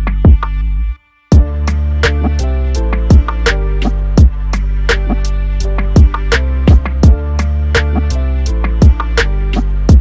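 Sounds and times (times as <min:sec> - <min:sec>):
held bass notes: 0:00.0 - 0:10.0
heavy bass drum hits: 0:01.3 - 0:05.2, 0:05.8 - 0:08.1, 0:08.7 - 0:09.3.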